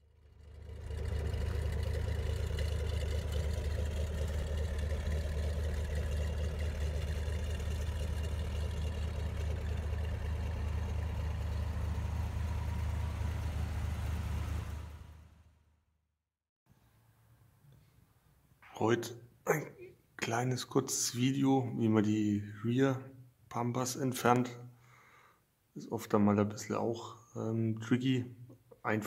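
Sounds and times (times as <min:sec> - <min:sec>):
car engine idling: 0:00.0 - 0:15.6.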